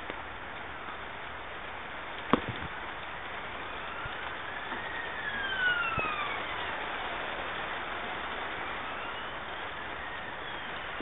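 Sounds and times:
rain on concrete: 0:00.0 - 0:11.0
passing vehicle whine: 0:02.8 - 0:11.0.

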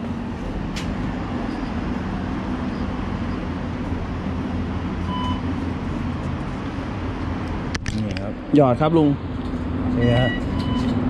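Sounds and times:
low hum and rumble: 0:00.0 - 0:11.0
card reader beep: 0:05.1 - 0:05.5, 0:10.0 - 0:11.0.

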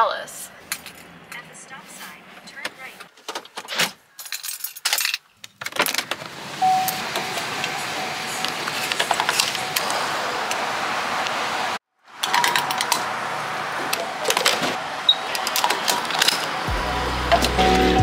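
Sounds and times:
fuel pump whirring: 0:06.0 - 0:18.0.

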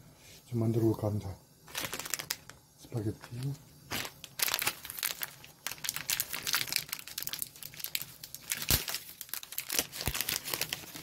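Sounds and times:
plastic wrapper crinkling: 0:01.6 - 0:11.0.

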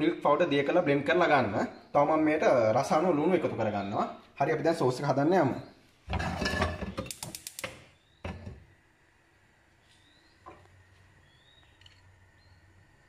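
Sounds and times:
frying pan clicking on stove: 0:06.4 - 0:08.6.

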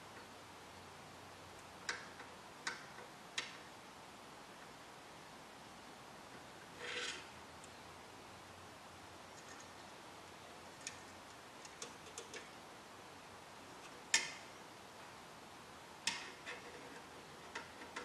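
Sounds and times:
metal tool clicking on steel chassis: 0:13.8 - 0:14.5, 0:16.0 - 0:18.0.

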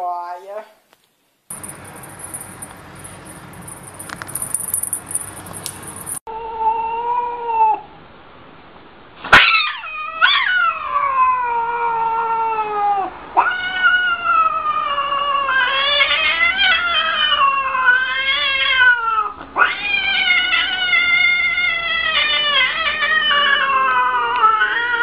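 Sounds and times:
cat yowling: 0:06.3 - 0:07.9, 0:09.3 - 0:25.0.

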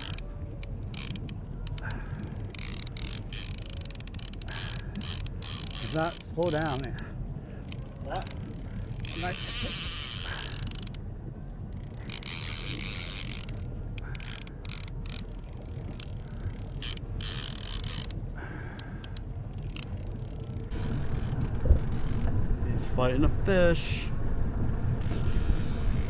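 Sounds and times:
fishing reel whirring and ratcheting: 0:00.0 - 0:11.0, 0:11.7 - 0:22.3, 0:25.0 - 0:26.0
boat engine rumble: 0:00.0 - 0:26.0.

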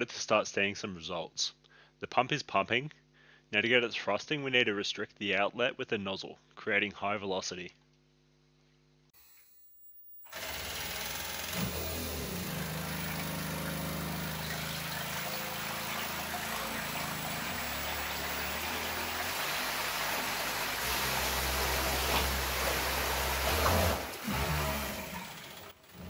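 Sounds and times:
motor hum: 0:09.2 - 0:26.0
churning water: 0:12.0 - 0:25.6.

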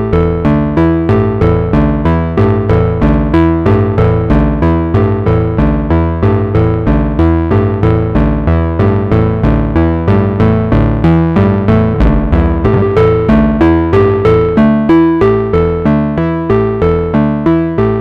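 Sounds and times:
synthesizer sequenced plucky notes: 0:11.7 - 0:14.6.

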